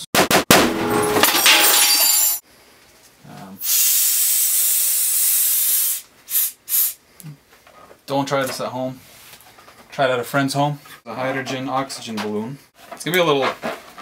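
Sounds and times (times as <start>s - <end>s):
debris ringing: 0.2s - 2.4s
compressed gas hissing: 3.6s - 7.0s.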